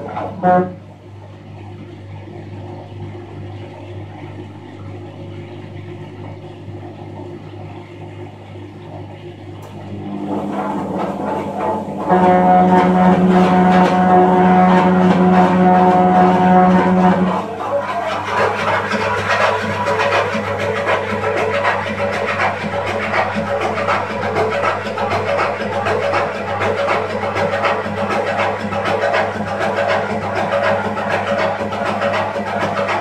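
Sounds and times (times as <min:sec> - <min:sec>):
washing machine humming: 0:00.0 - 0:33.0
loud pitched drone: 0:08.7 - 0:28.0.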